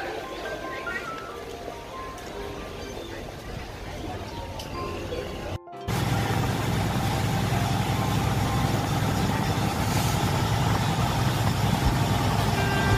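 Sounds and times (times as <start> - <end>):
wind: 0.0 - 12.9
boat engine rumbling: 3.2 - 12.9
water washing: 5.9 - 12.9.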